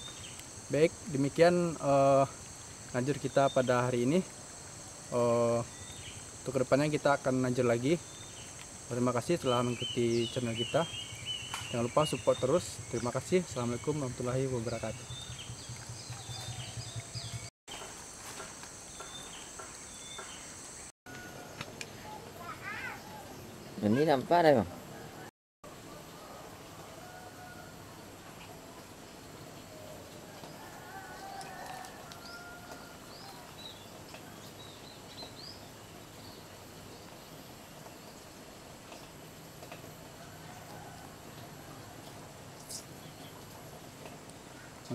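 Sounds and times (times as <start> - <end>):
insect drone: 0.0 - 20.9
faint outdoor hiss: 0.0 - 44.9
bird chirps: 9.3 - 17.9.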